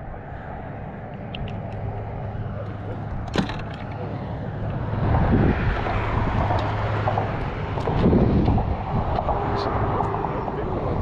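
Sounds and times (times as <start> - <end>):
wind noise on microphone: 4.6 - 11.0.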